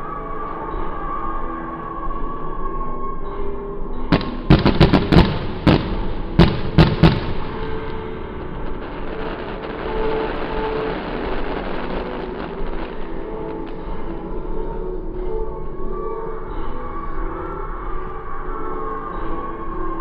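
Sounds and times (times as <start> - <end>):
fireworks bangs: 4.1 - 13.8.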